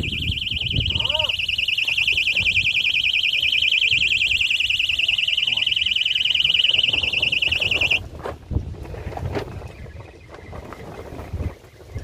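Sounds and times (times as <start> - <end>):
high warbling bite alarm: 0.0 - 8.0.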